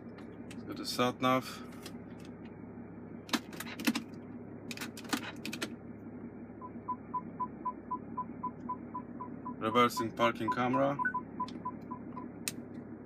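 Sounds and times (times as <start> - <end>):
parking sensor beeping: 6.6 - 12.4.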